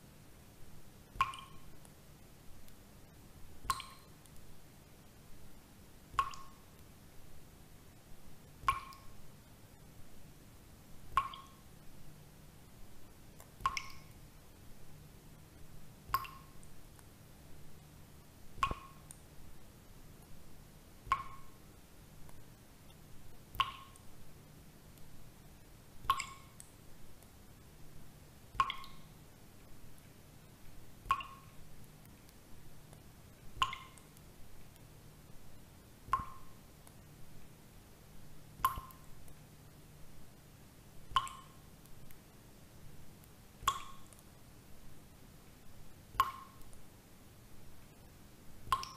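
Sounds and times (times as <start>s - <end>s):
water drips plopping: 1.2s - 2.0s, 3.6s - 4.4s, 6.1s - 6.8s, 8.6s - 9.2s, 11.1s - 11.6s, 13.4s - 14.2s, 16.1s - 17.1s, 18.6s - 19.3s, 21.0s - 21.6s, 22.9s - 24.1s, 26.0s - 26.8s, 28.5s - 29.2s, 31.0s - 32.1s, 32.9s - 34.8s, 36.1s - 37.0s, 38.6s - 39.4s, 41.1s - 42.2s, 43.6s - 44.3s, 46.2s - 46.8s, 48.7s - 48.9s.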